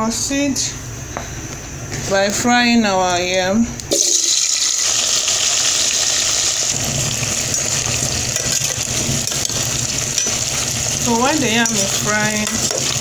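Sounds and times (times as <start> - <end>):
food frying in hot oil: 3.9 - 13.0.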